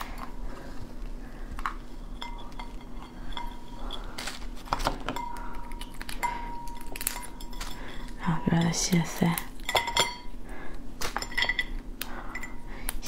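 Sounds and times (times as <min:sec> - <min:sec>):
crab shell cracking: 0:04.2 - 0:07.6.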